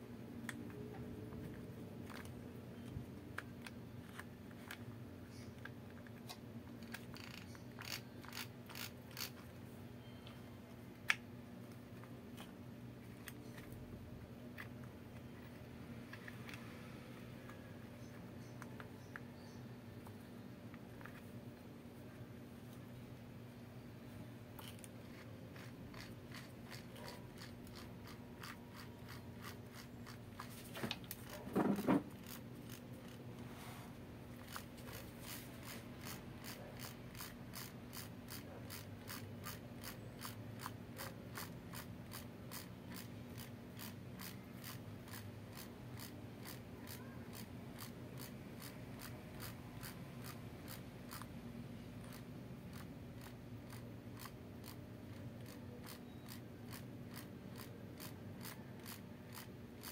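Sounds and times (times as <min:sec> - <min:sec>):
clicks and scrapes of parts: 0:14.5 - 0:19.3, 0:24.6 - 0:41.9.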